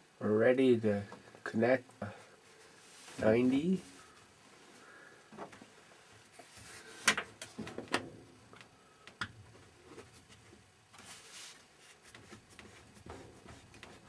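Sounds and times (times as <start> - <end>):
soft rustling: 2.2 - 7.0, 9.6 - 14.0.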